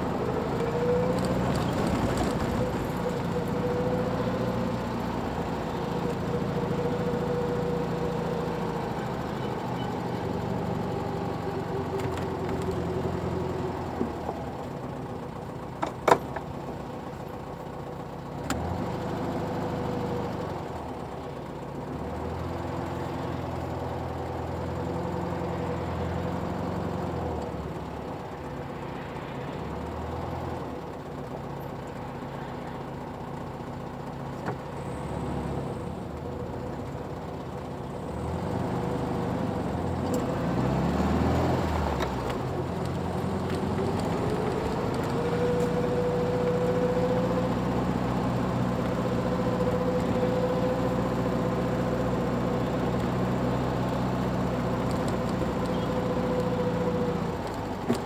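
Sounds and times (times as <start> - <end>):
car engines in traffic: 0.0 - 58.0.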